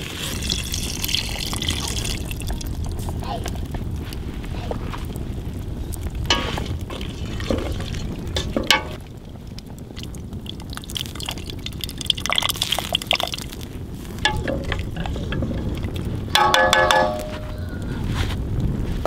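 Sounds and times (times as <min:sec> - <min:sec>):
pot bubbling over fire: 0:00.0 - 0:19.0
steady low rumble: 0:00.4 - 0:19.0.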